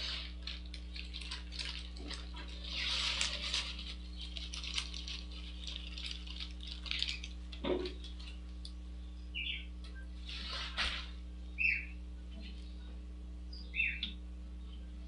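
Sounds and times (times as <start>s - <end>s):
grains clicking against pot: 0.0s - 8.8s.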